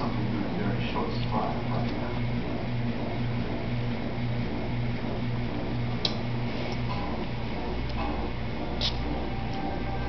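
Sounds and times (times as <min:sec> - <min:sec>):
low hum with hiss: 0:00.0 - 0:10.0.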